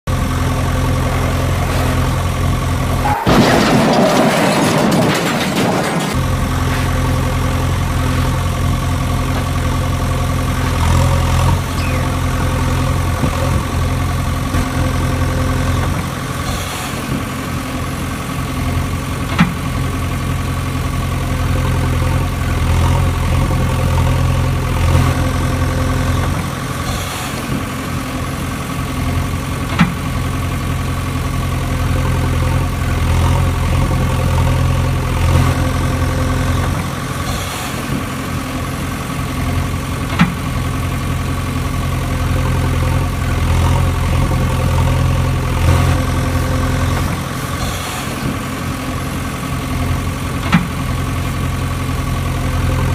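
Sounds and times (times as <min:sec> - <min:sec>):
heavy engine idling: 0:00.0 - 0:52.9.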